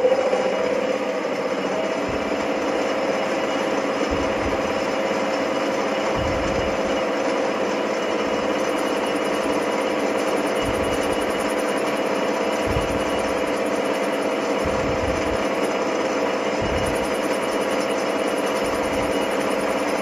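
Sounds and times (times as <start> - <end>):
metal lathe running: 0.0 - 20.0
low thuds: 2.0 - 2.8, 4.0 - 5.0, 6.1 - 7.0, 10.6 - 11.4, 12.6 - 13.5, 14.6 - 15.5, 16.6 - 17.2.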